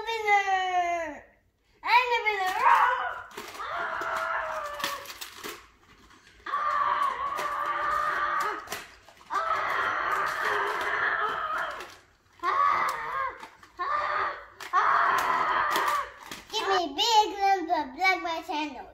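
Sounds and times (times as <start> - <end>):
boy roaring like a dinosaur: 2.6 - 5.1, 6.4 - 16.2.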